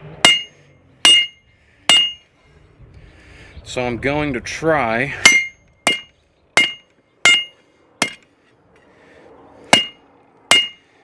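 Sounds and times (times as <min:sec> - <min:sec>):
hammer striking steel on anvil: 0:00.2 - 0:02.3, 0:05.2 - 0:08.3, 0:09.7 - 0:10.9.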